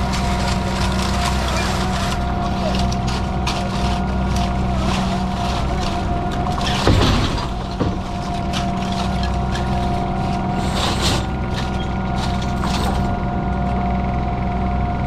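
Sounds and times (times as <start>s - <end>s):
boat engine running: 0.0s - 15.0s
loud knocks: 6.5s - 8.8s.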